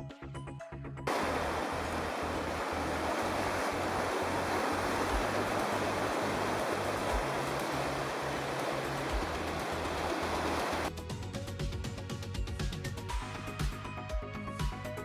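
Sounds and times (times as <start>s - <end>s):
whitewater rapids rushing: 1.1s - 10.9s.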